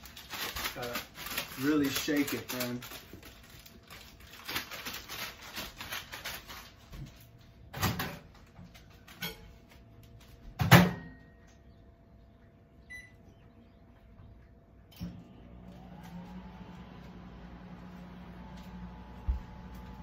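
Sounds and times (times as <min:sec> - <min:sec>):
snack packet rustling: 0:00.0 - 0:07.6
microwave door banging shut: 0:10.6 - 0:11.2.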